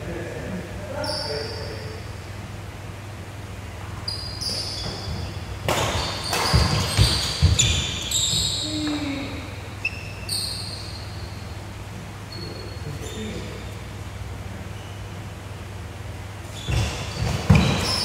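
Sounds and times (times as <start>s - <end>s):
steady low hum: 0.0s - 18.0s
sneakers squeaking on floor: 0.9s - 2.2s, 3.9s - 14.0s, 14.6s - 15.4s, 16.4s - 18.0s
racket hitting shuttlecock: 5.6s - 7.9s.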